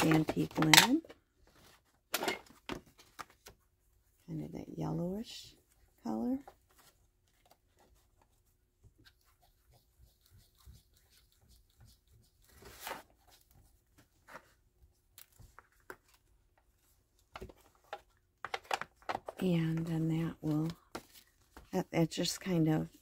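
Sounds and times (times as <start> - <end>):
paper rustling and rubbing: 6.5 - 14.6
scuff on paper: 9.0 - 14.6.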